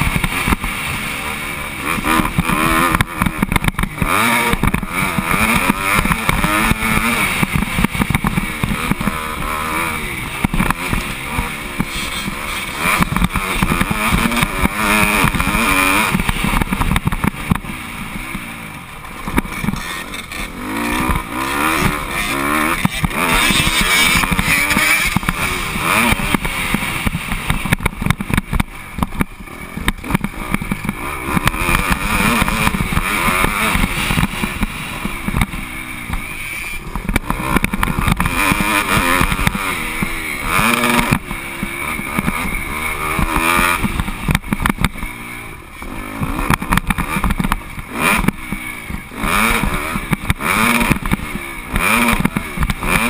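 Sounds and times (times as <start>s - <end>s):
motocross bike engine revving: 0.0s - 53.0s.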